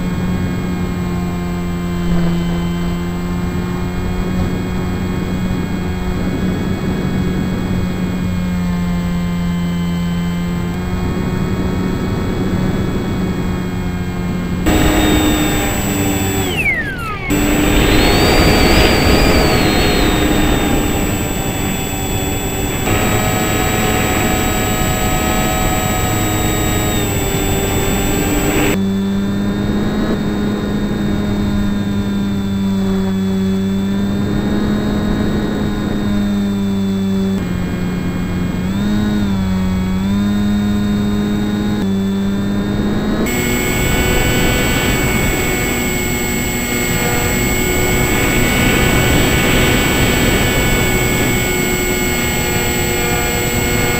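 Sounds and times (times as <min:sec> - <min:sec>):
model plane motor droning: 0:00.0 - 0:53.9
wind rushing over camera: 0:10.8 - 0:41.1, 0:41.8 - 0:53.9
quick falling whistle: 0:14.8 - 0:23.5.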